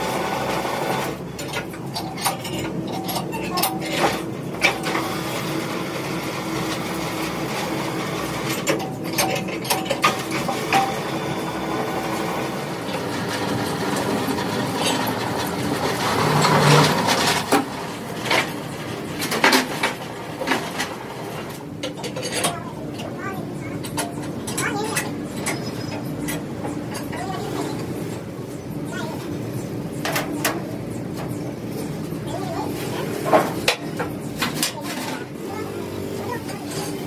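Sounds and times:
metal clanks and knocks: 0:12.9 - 0:23.2.

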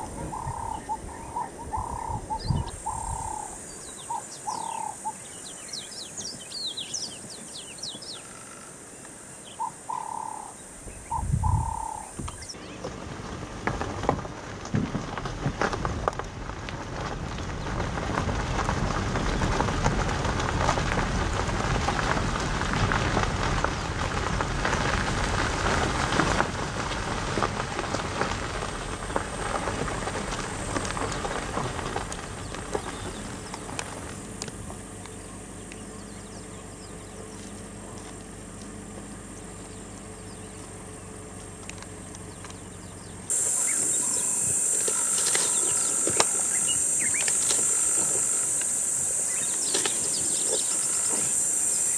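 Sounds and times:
vehicle rolling over gravel: 0:00.0 - 0:09.0, 0:11.1 - 0:51.9
engine idling: 0:26.9 - 0:51.9.

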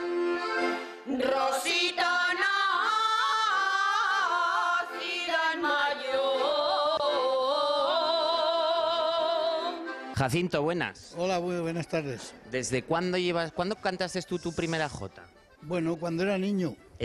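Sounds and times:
women singing together: 0:01.1 - 0:09.8.

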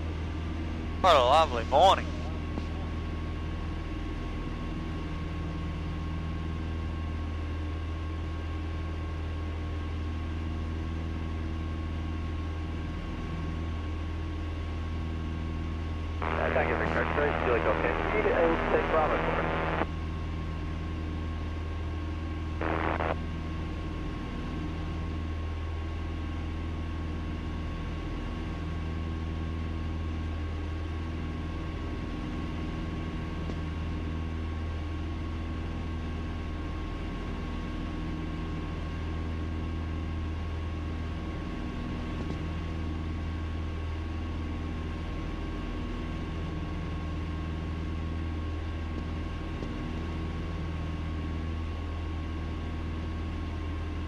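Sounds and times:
airplane cabin engine drone: 0:00.0 - 0:43.8
thin steady whine: 0:16.2 - 0:20.0, 0:22.4 - 0:23.3.

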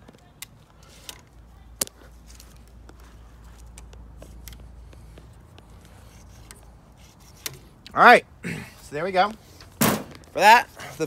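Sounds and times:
faint rubbing and handling: 0:00.7 - 0:07.8.

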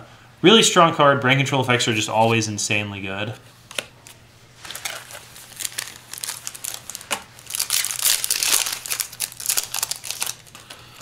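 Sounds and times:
foil wrapper crinkling: 0:04.6 - 0:11.0.

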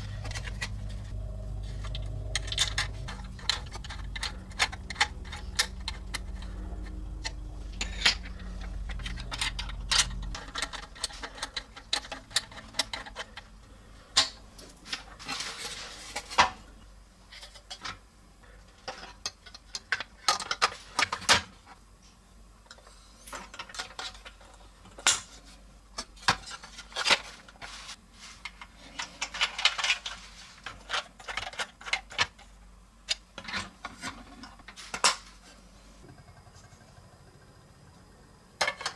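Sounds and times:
plastic parts clicking and clattering: 0:00.0 - 0:01.1, 0:01.8 - 0:16.7, 0:18.6 - 0:21.8, 0:22.7 - 0:36.6, 0:38.6 - 0:38.9
low rumble: 0:00.0 - 0:11.0.

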